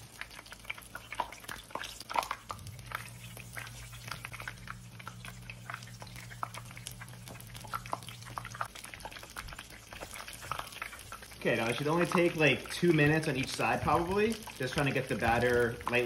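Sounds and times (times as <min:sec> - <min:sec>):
low steady hum: 0:00.0 - 0:16.0
oil crackling and popping: 0:00.0 - 0:16.0.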